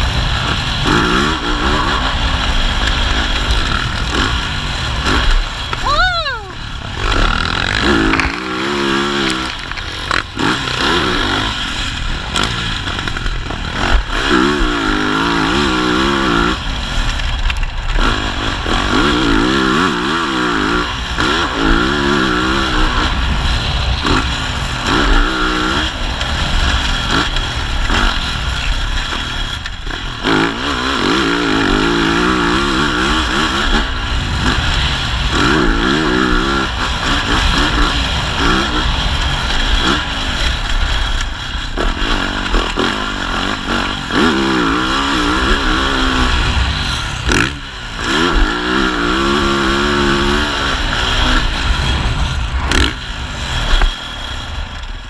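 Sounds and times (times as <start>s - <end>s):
motocross bike engine revving: 0.0s - 55.0s.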